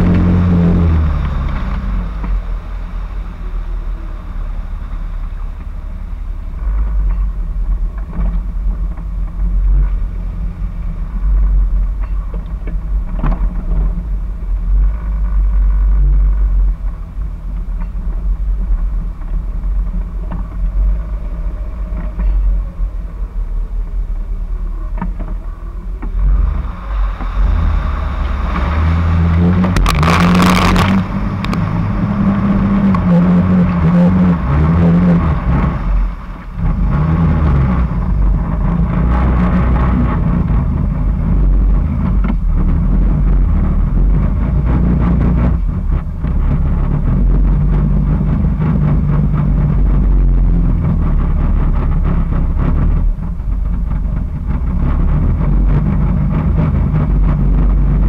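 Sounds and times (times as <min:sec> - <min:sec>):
engine revving: 0:00.0 - 0:17.3, 0:18.2 - 0:58.0
loud low exhaust rumble: 0:00.0 - 0:58.0
tyres splashing through muddy water: 0:24.4 - 0:58.0.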